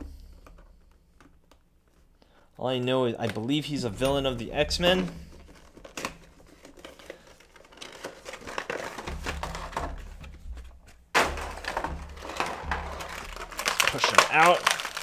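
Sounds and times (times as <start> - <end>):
plastic crinkling: 4.0 - 15.0
packaging rustling and clicking: 4.9 - 15.0.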